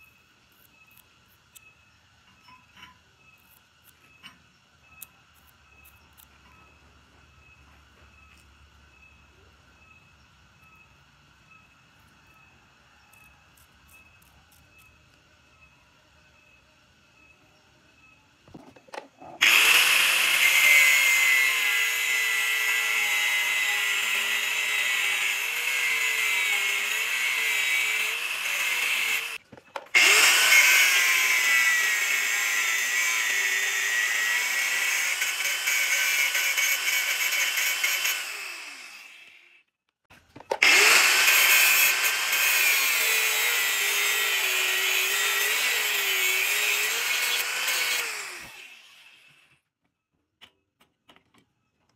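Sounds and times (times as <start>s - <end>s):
angle grinder grinding steel: 19.2s - 39.6s, 40.6s - 49.6s.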